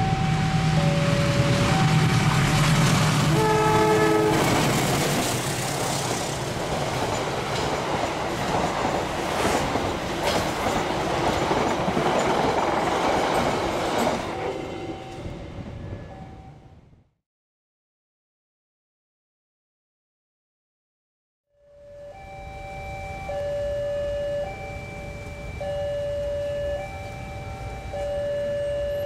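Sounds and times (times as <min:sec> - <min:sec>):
alternating two-note signal: 0:00.0 - 0:02.2, 0:21.6 - 0:29.0
locomotive engine hum: 0:00.0 - 0:16.5, 0:21.8 - 0:29.0
train horn blast: 0:03.2 - 0:04.8
train wheels clacking over rail joints: 0:04.3 - 0:14.3.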